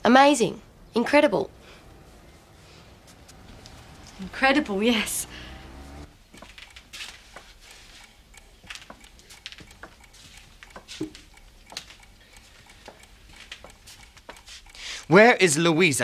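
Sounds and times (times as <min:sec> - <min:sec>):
chalk writing on blackboard: 0:09.2 - 0:11.3, 0:13.8 - 0:14.8.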